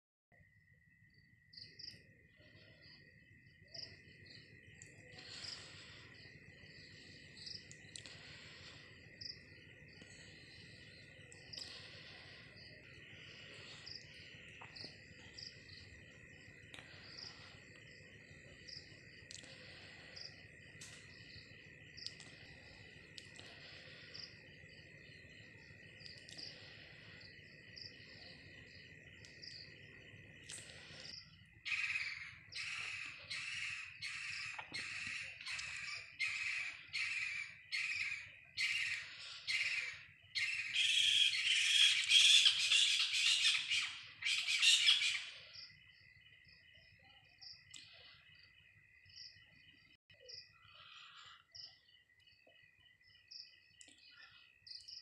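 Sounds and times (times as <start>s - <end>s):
crickets trilling: 0.3s - 55.0s
high insect chirps: 0.4s - 55.0s.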